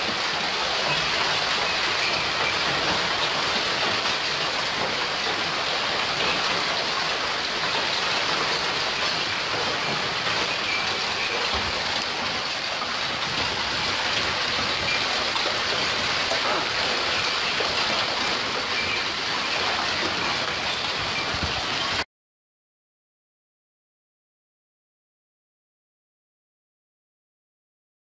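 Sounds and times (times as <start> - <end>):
hail and rain pelting: 0.0 - 22.0.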